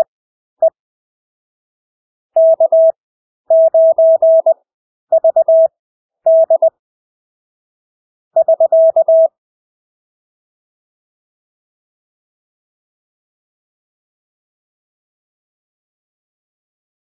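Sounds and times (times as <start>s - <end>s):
morse code beeps: 2.4s - 5.7s, 6.3s - 6.7s, 8.4s - 9.3s.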